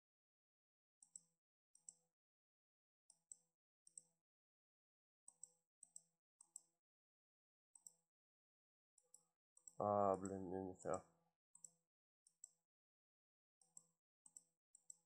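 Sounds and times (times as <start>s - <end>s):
computer mouse clicks: 1.0s - 2.1s, 3.1s - 4.2s, 5.3s - 6.8s, 7.8s - 8.0s, 11.6s - 12.6s, 13.6s - 15.0s.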